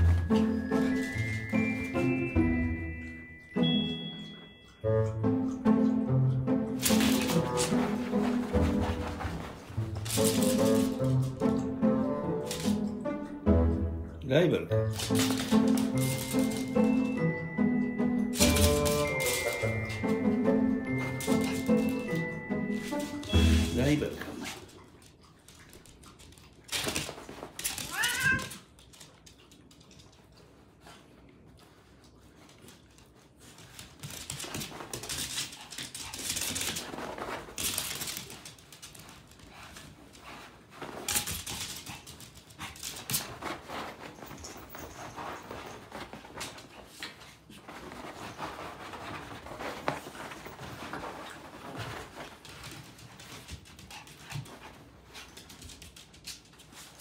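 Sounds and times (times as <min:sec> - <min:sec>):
small animals moving on wooden floor: 0:06.8 - 0:11.8, 0:14.9 - 0:17.1, 0:24.5 - 0:30.6, 0:32.0 - 0:57.0
cat meowing: 0:27.8 - 0:28.7.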